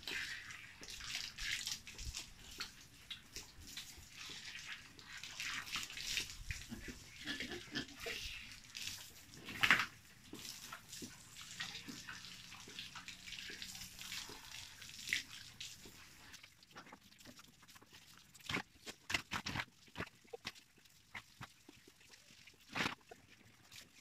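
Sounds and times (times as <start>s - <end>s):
hose water splashing on floor: 0.0s - 24.0s.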